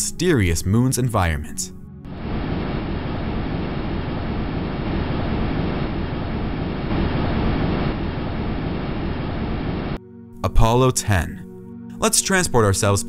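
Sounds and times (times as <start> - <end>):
deep rushing wind: 2.0 - 10.0.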